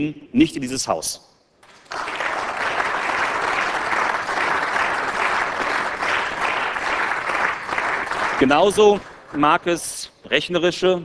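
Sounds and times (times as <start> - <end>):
applause: 1.6 - 10.0.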